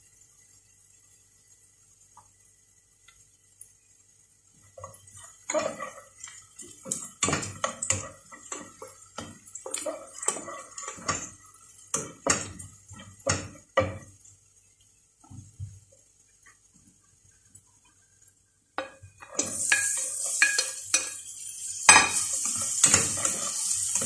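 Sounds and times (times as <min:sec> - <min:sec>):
spatula scraping a metal saucepan: 0:05.2 - 0:12.6, 0:21.9 - 0:24.0.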